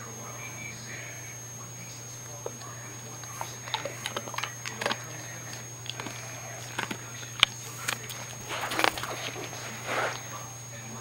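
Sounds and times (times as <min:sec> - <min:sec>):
dog chewing hard treat: 0:02.4 - 0:10.5.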